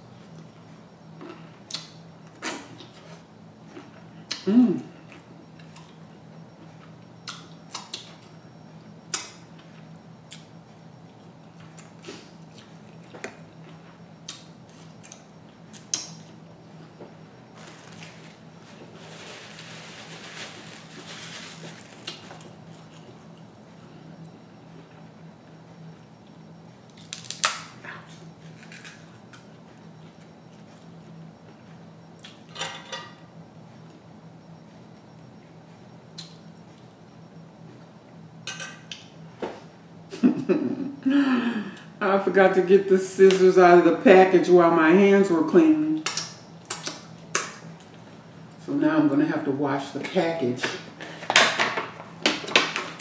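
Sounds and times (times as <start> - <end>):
low steady hum: 0.0 - 53.0
crab shell cracking: 26.9 - 27.7.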